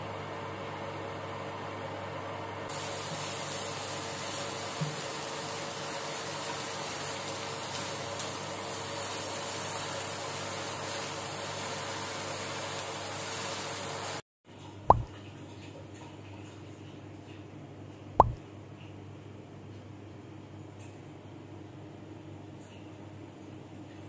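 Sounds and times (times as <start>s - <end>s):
food sizzling in a frying pan: 2.7s - 14.2s.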